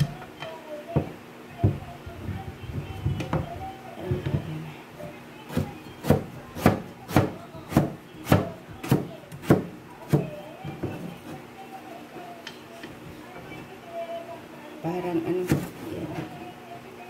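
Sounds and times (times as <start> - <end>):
knife chopping on cutting board: 5.5 - 10.9, 15.4 - 15.7.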